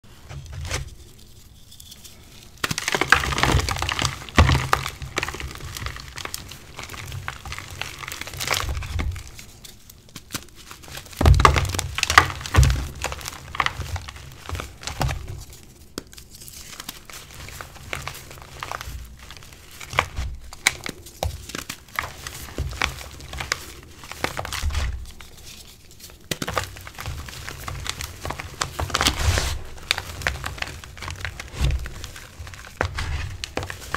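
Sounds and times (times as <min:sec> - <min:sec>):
hands crushing chalk blocks: 0:00.4 - 0:33.9.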